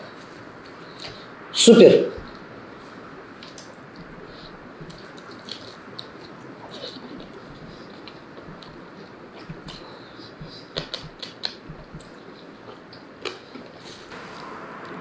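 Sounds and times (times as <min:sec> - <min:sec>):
man chewing meat: 0:02.3 - 0:14.2
mouth smacks: 0:04.8 - 0:14.0.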